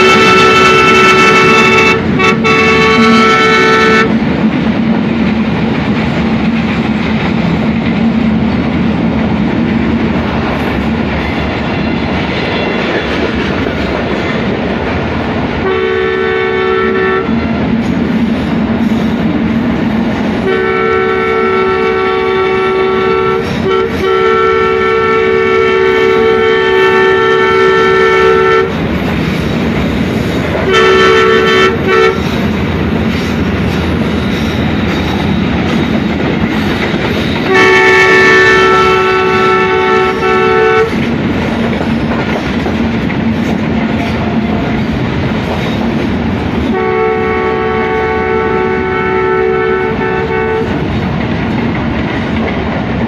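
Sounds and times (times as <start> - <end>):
two-note locomotive horn: 0.0 - 4.2, 15.6 - 17.6, 20.4 - 28.8, 30.6 - 32.3, 37.4 - 41.0, 43.9 - 44.8, 46.7 - 50.9
train wheels rumbling on rails: 0.0 - 53.0.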